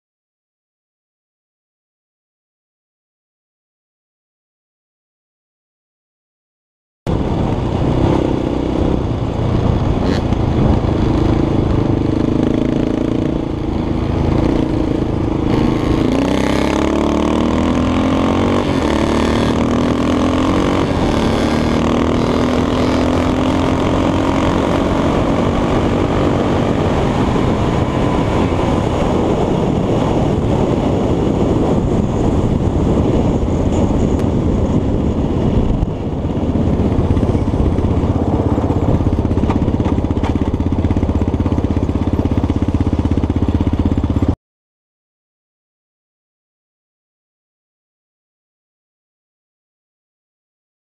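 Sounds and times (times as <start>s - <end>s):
quad engine running hard: 7.1s - 44.4s.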